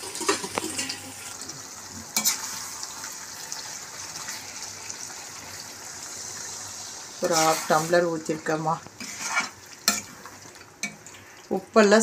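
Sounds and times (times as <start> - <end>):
chicken sizzling in a pan: 0.0 - 12.0
water hissing in hot pan: 0.0 - 12.0
ladle stirring: 7.2 - 11.3.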